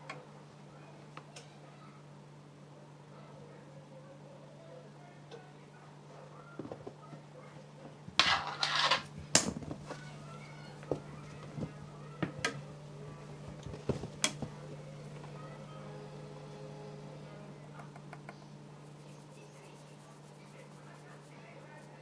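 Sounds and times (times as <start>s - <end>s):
steady low hum: 9.1s - 22.0s.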